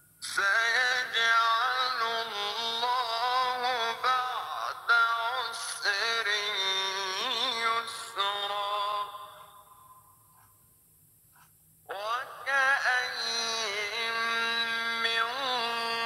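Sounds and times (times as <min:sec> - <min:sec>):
person chanting a melody: 0:11.9 - 0:16.0.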